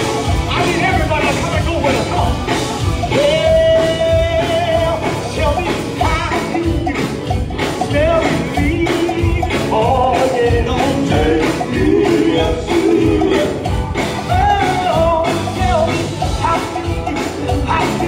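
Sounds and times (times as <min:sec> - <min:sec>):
band drum beat: 0:00.0 - 0:18.0
singers holding long notes: 0:09.1 - 0:13.7.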